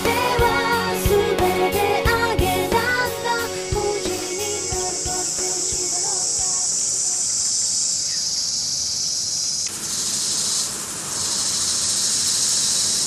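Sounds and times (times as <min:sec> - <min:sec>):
high-pitched insect drone: 0:03.2 - 0:13.0
lawn sprinkler hissing: 0:03.4 - 0:13.0.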